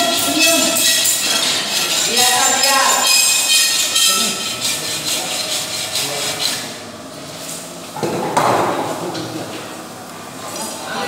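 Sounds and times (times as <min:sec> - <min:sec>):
hand tool scraping metal: 0:00.0 - 0:06.8.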